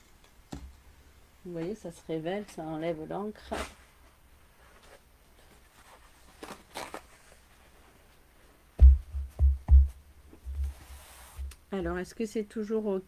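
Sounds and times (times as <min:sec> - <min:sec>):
dull low thumps: 0:08.8 - 0:10.8.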